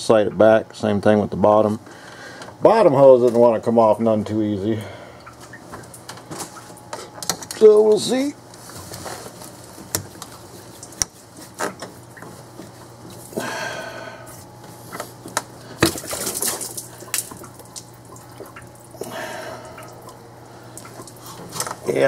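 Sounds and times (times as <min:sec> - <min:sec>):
coolant dripping and splashing: 0:09.8 - 0:13.5, 0:15.2 - 0:22.0.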